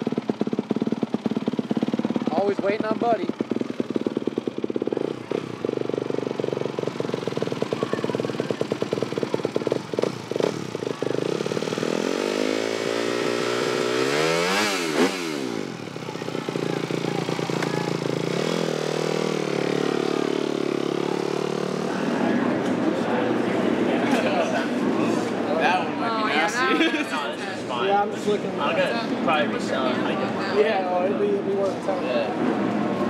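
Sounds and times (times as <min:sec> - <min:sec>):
motorcycle engine popping idle: 0:00.0 - 0:21.9.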